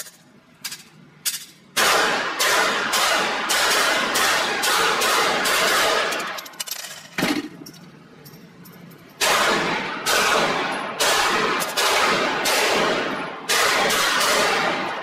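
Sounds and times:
pistol shots echoing: 0:01.8 - 0:06.4, 0:09.2 - 0:15.0.

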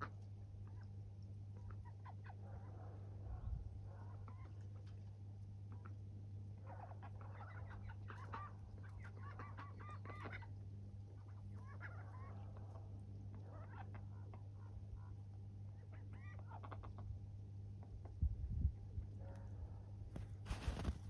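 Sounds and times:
steady low hum: 0:00.0 - 0:21.0
ducks quacking: 0:06.6 - 0:17.2.

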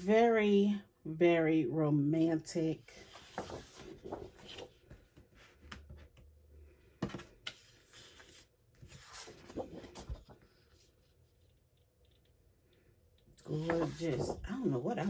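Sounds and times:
paper sheets rustling: 0:02.9 - 0:06.1, 0:07.0 - 0:10.9, 0:13.4 - 0:15.0.

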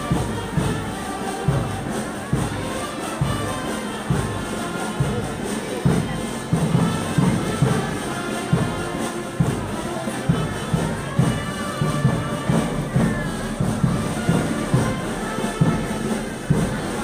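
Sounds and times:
wind instruments holding tones: 0:00.0 - 0:17.0.

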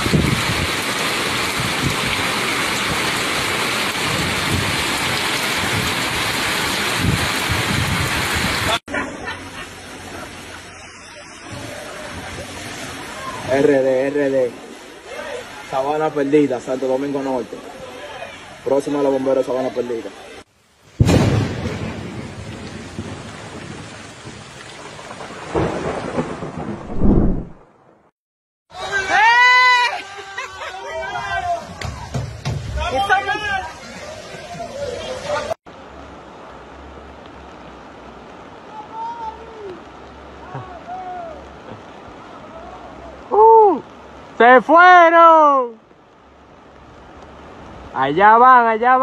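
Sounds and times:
rolling thunder: 0:00.0 - 0:08.8, 0:20.9 - 0:28.1
heavy rain pouring: 0:00.0 - 0:28.1, 0:28.7 - 0:49.0.

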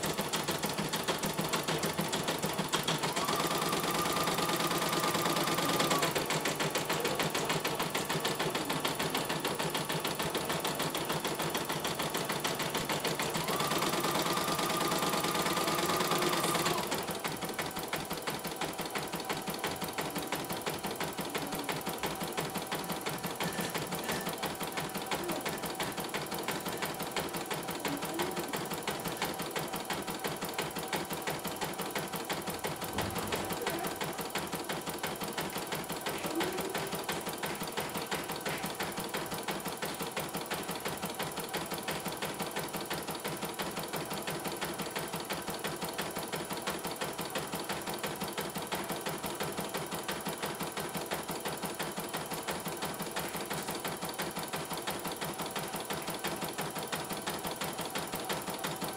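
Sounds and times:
embroidery machine stitching: 0:00.0 - 0:58.9.

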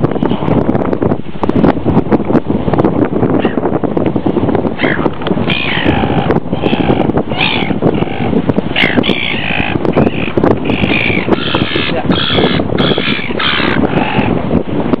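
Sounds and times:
gulls squawking: 0:04.8 - 0:14.4.

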